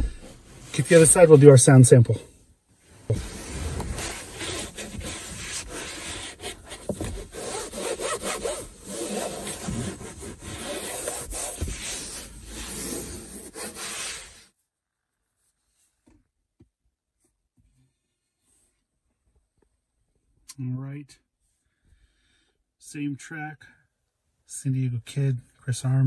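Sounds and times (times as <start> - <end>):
cloth wiping plastic dashboard: 0.0 - 2.2, 2.8 - 14.5.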